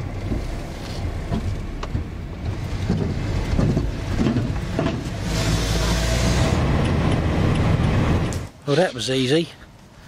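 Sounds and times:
car engine and road rumble: 0.0s - 10.0s.

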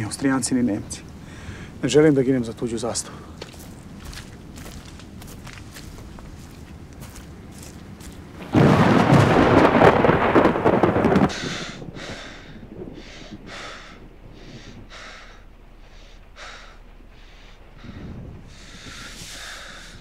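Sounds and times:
man breathing heavily: 1.2s - 1.8s, 11.3s - 20.0s
loud rumbling burst: 8.4s - 20.0s.

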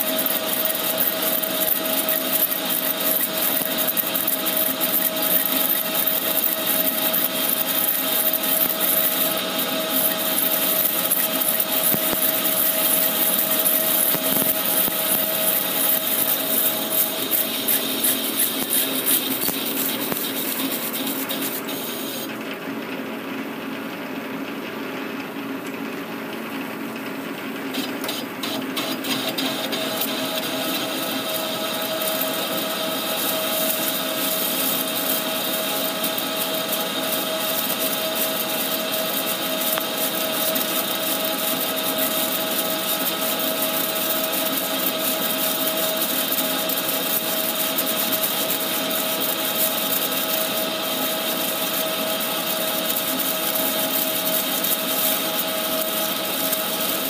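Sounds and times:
lathe machine whining: 0.0s - 22.4s, 27.8s - 57.0s
hiss of metal cutting: 27.8s - 39.2s.

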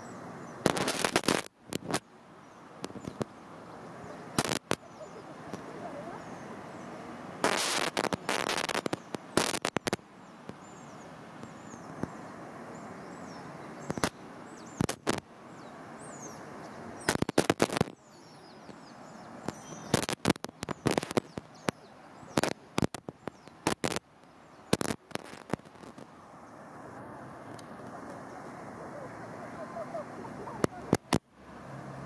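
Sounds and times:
flowing water: 0.0s - 32.0s
sharp crackling clicks: 0.6s - 2.1s, 2.8s - 3.4s, 4.4s - 4.9s, 7.4s - 10.6s, 13.8s - 14.2s, 14.8s - 15.3s, 17.0s - 18.0s, 19.4s - 26.1s, 30.6s - 31.3s.

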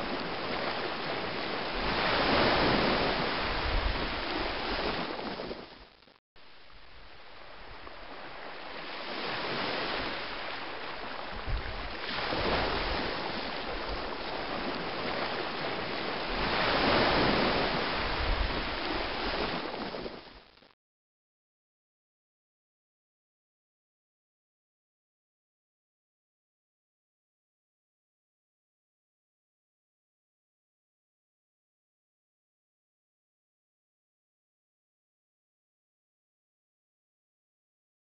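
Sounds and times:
rushing surf-like water: 0.0s - 20.8s.

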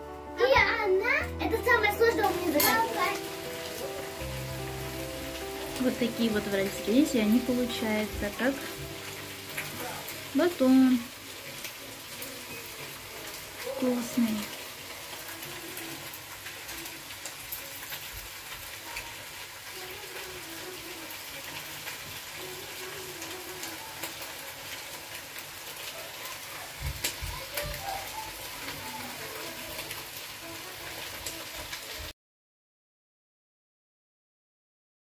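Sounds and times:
faint voices: 25.8s - 32.0s.

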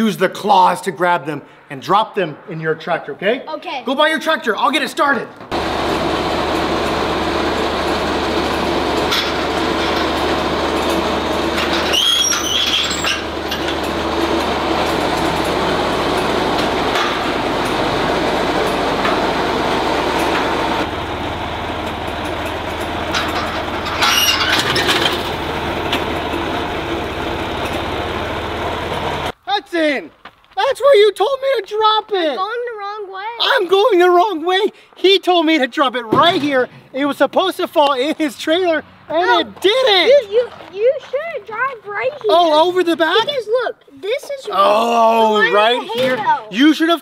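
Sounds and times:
tractor engine running: 5.4s - 29.4s
high squeaks: 8.4s - 17.8s, 22.3s - 26.5s.

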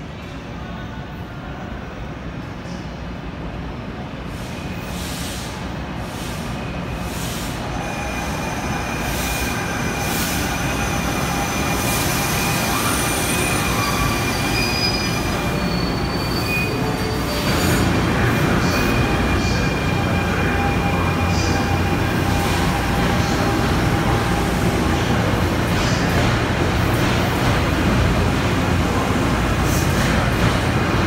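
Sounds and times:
train wheels rumbling on rails: 4.3s - 31.0s
high wheel squeals: 7.7s - 22.5s.

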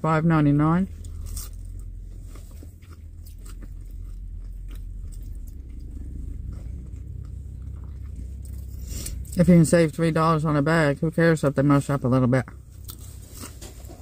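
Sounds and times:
low hum: 0.0s - 14.0s
person chewing food: 0.9s - 9.4s, 12.5s - 14.0s.

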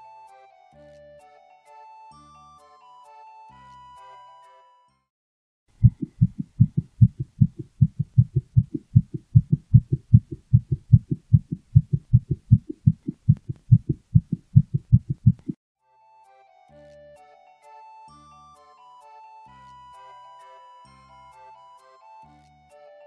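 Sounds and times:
cat heartbeat thuds: 5.8s - 15.6s.

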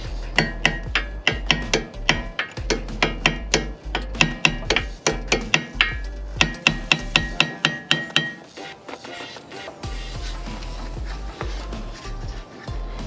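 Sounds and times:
hammer tapping metal pin: 0.4s - 8.6s.

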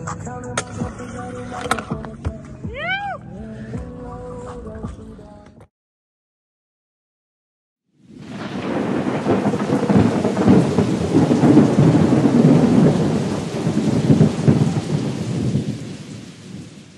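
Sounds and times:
heavy rain: 8.0s - 16.9s
low rumble of thunder: 8.1s - 16.9s.

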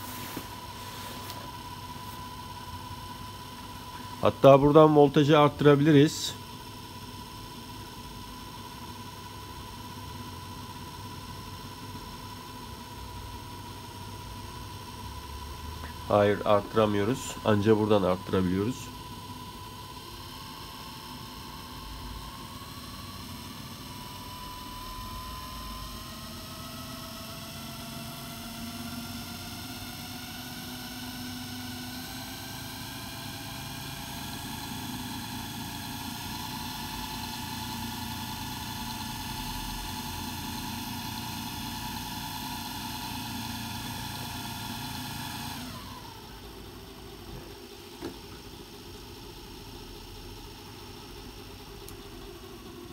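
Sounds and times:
electric motor whining: 15.3s - 49.5s.

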